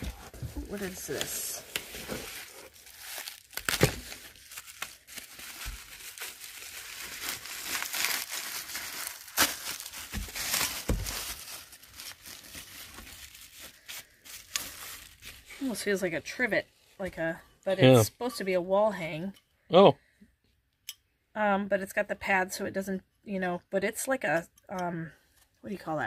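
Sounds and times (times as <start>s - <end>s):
bubble wrap crinkling: 0.0s - 15.9s.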